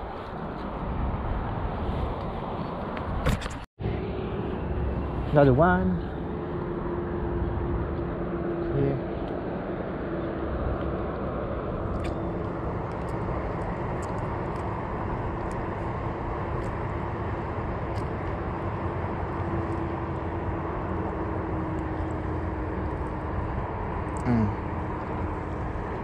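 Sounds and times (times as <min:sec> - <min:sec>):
steady outdoor rumble: 0:00.0 - 0:26.0
faint engine drone: 0:03.3 - 0:26.0.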